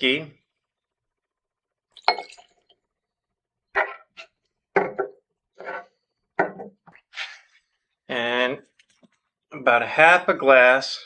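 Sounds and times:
glasses and bottles set down: 2.0 - 2.6, 4.7 - 5.8, 6.4 - 6.8
glasses clinking: 2.0 - 2.6
glass scraping on wooden table: 3.8 - 4.2, 4.8 - 6.7.

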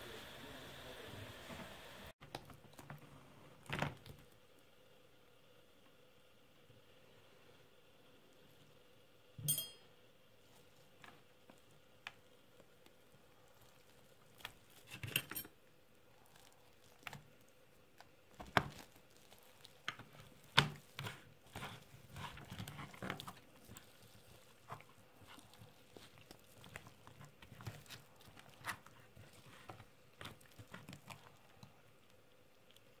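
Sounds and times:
tearing of roast meat: 16.1 - 32.9.

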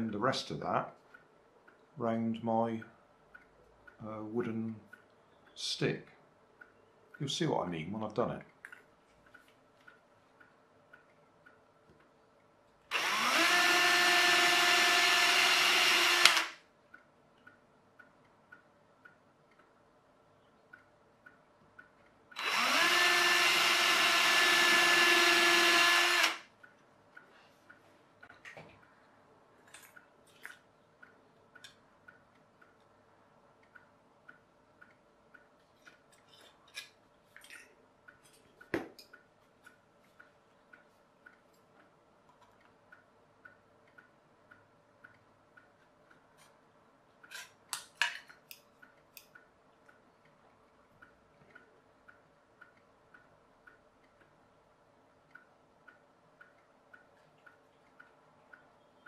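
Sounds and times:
faint steady ticking: 0.0 - 59.0
tin snips cutting metal: 47.2 - 48.6.

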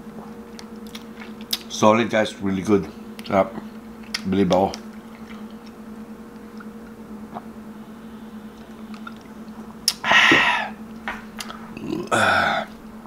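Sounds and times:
steady low hum: 0.0 - 13.0
loud breathy exhales: 10.0 - 10.8.

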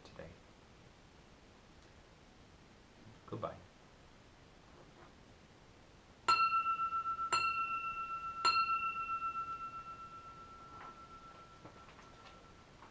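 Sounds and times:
chime ringing high note: 6.3 - 12.9.

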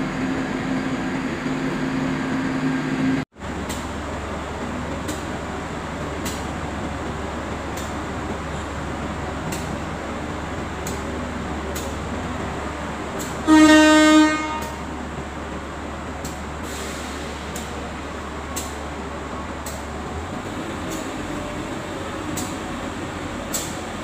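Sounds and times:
train horn blast: 13.4 - 15.0.

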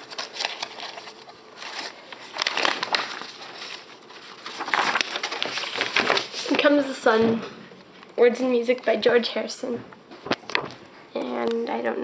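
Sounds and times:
paper pages rustling: 0.0 - 7.0.

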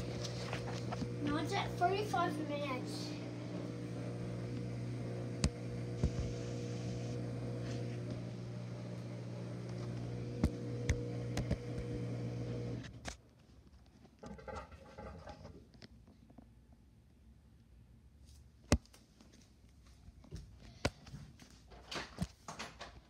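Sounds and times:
washing machine humming: 0.0 - 13.0.

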